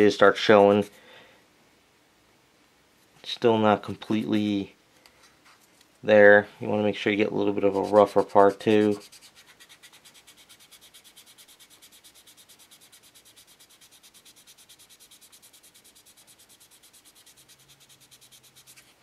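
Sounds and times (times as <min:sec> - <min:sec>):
sandpaper rubbing on resin: 0:00.1 - 0:01.0, 0:07.4 - 0:19.0.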